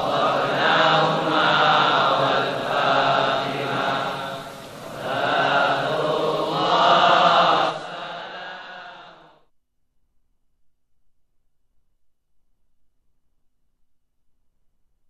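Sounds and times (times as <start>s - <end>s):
chanting in long held phrases: 0.0s - 9.4s.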